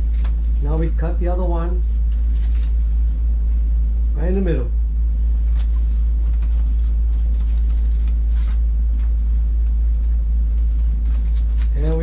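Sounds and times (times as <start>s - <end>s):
steady low hum: 0.0s - 12.0s
scissors cutting paper: 5.4s - 9.1s, 9.9s - 12.0s.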